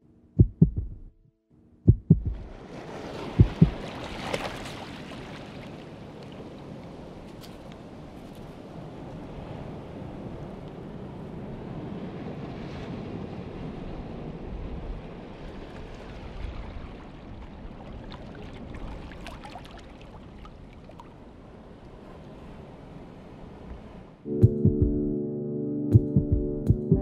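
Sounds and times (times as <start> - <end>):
wind buffeting microphone: 1.9 - 4.0
surf washing on beach: 2.4 - 24.2.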